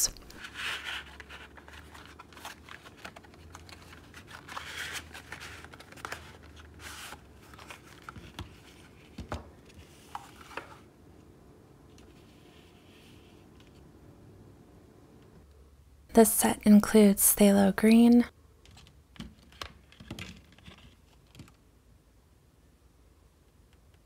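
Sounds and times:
cardboard rustling and scraping: 0.3 - 10.9.

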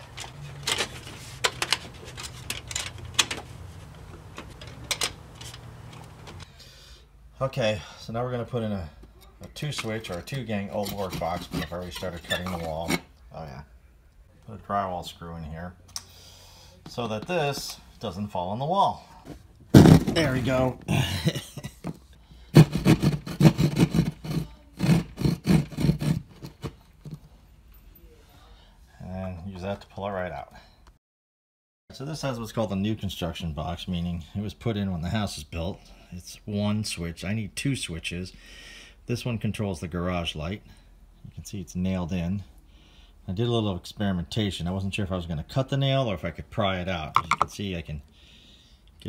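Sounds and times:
jab saw cutting drywall: 10.7 - 13.0, 22.5 - 26.8.

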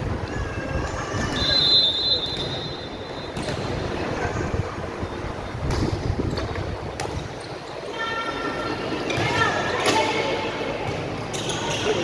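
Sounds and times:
crowd noise in gym: 0.0 - 12.0
referee's whistle: 1.3 - 3.4.

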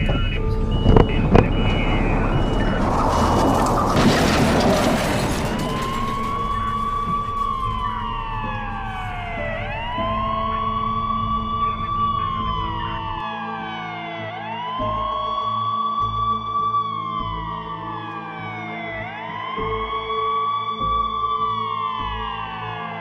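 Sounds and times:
harsh noisy rush: 0.0 - 13.2
ambulance siren wailing: 0.0 - 23.0.

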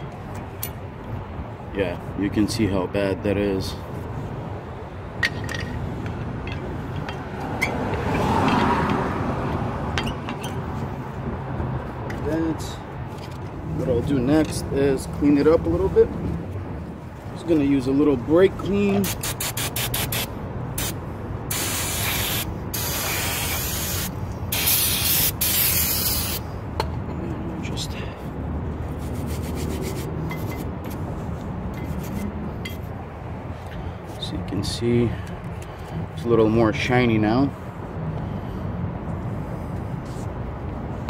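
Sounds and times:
metal brake parts clinking: 5.2 - 7.7
aerosol spray hissing: 19.0 - 26.4.

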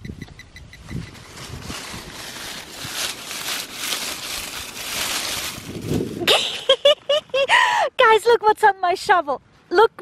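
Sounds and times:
dry leaves rustling and crunching: 1.0 - 7.2.

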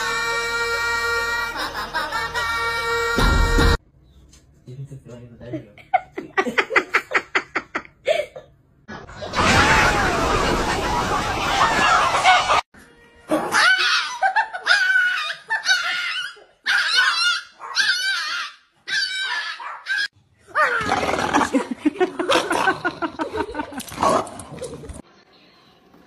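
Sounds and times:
small dog high cries: 13.5 - 20.9.

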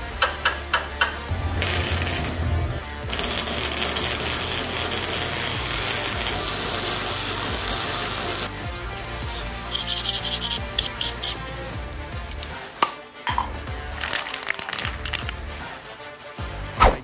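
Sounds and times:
arc welding crackling hiss: 1.5 - 2.5, 3.1 - 8.5.

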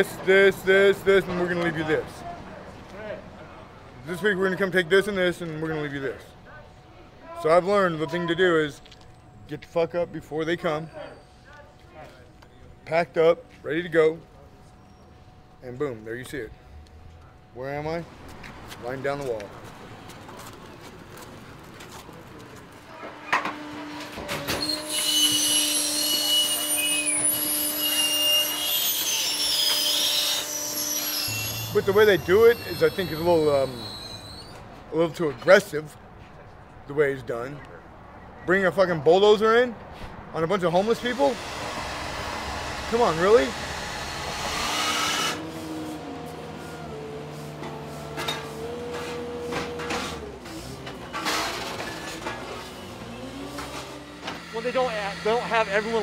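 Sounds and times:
hydraulic packer whining: 23.0 - 34.9, 40.7 - 56.0
engine hum: 41.0 - 56.0.

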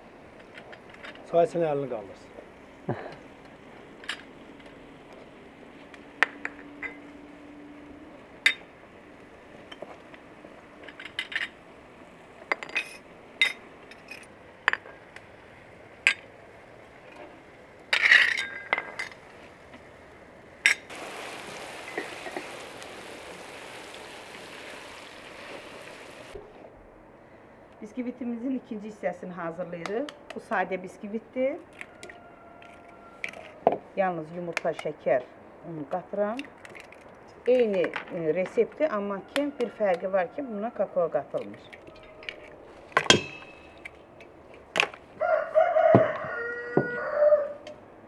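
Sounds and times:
onions sizzling in frying pan: 20.9 - 26.4.

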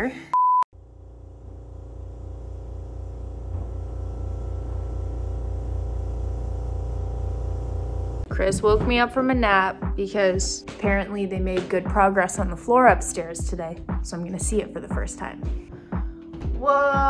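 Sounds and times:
pulsing machine hum: 0.8 - 9.4.

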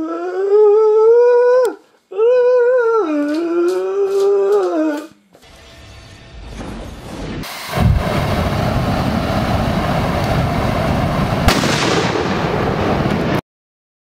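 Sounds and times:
flamethrower rushing jet: 7.1 - 13.4
sharp crack: 11.4 - 13.4.

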